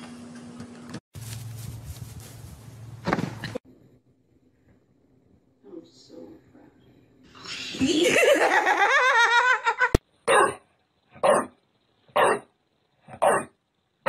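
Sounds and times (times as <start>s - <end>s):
woman laughing: 7.7s - 10.0s
puppy barking: 10.3s - 10.6s, 11.2s - 12.5s, 13.1s - 13.6s.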